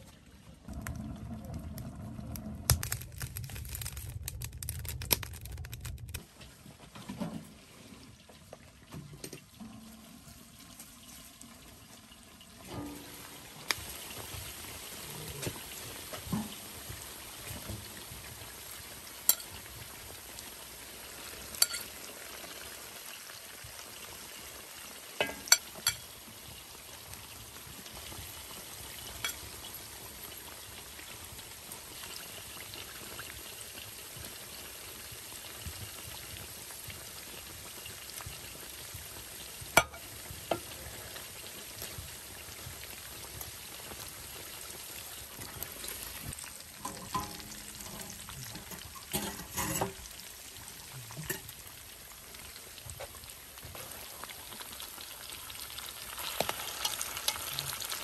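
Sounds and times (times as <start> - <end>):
meat sizzling: 2.5 - 6.2, 10.3 - 58.0
sharp clicks and pops: 2.7 - 6.2.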